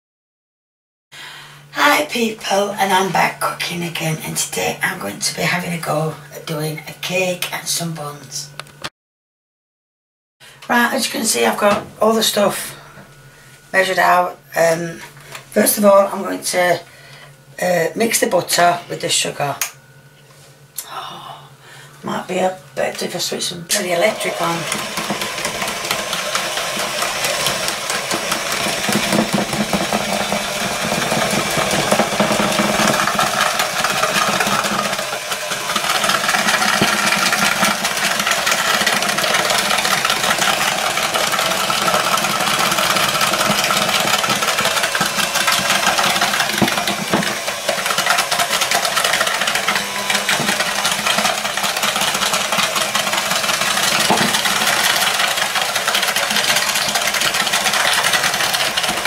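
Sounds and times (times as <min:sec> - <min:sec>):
electric hand mixer running: 0:23.7 - 0:59.0
beaters rattling against plastic bowl: 0:24.1 - 0:59.0.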